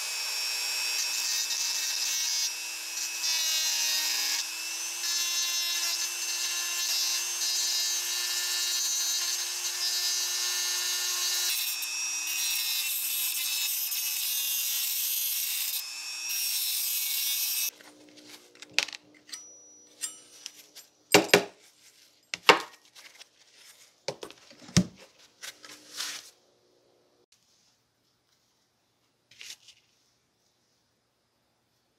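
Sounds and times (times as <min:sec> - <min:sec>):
metal parts clacking: 0:18.6 - 0:21.4.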